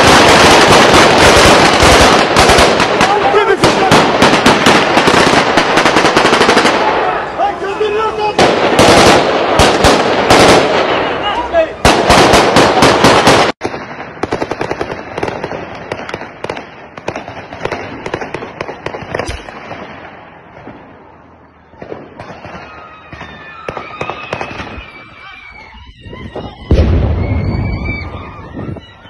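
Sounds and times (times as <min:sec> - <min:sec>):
distant gunshots crackling: 0:00.0 - 0:07.2, 0:08.4 - 0:11.1, 0:11.8 - 0:20.9.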